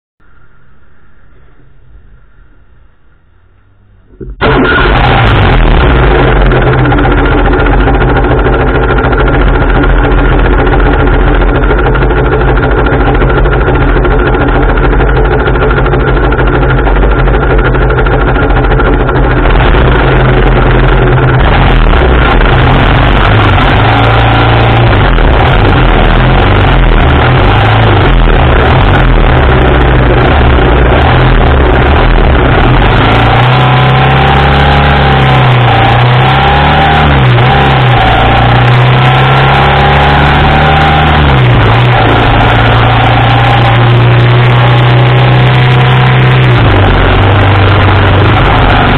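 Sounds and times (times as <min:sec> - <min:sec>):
motorcycle engine idling: 0:06.0 - 0:22.5.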